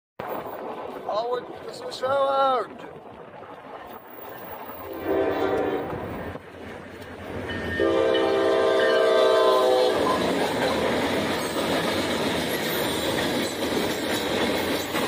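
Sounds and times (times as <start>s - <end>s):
freight cars rolling past: 0.2s - 15.0s
locomotive horn blasts: 4.9s - 6.1s, 7.6s - 10.2s.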